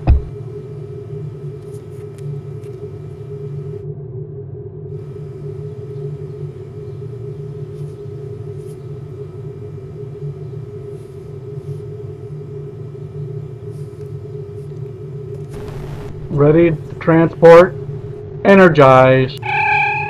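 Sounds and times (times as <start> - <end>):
low electronic hum: 0.0 - 19.9.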